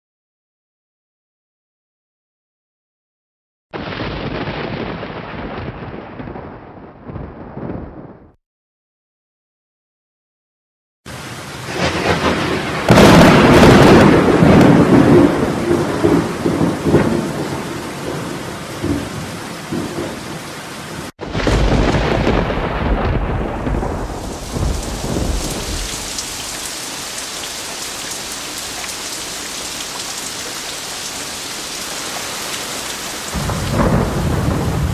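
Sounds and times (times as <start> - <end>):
rumbling thunder: 3.8 - 8.4, 11.7 - 20.3, 21.2 - 26.6, 33.3 - 34.9
rain falling: 11.1 - 34.9.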